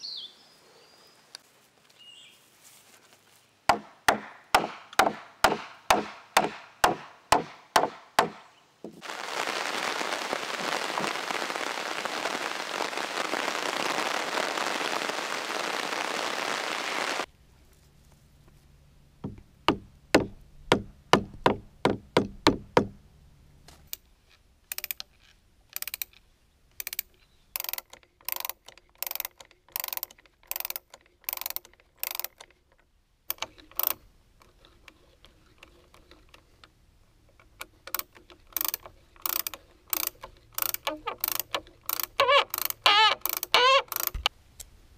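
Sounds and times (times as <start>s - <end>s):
loud steady hiss: 8.2s - 17.3s
wooden mallet knocking on timber: 19.2s - 23.0s
hand brace clicking: 24.7s - 26.2s, 26.8s - 36.7s, 37.3s - 44.3s.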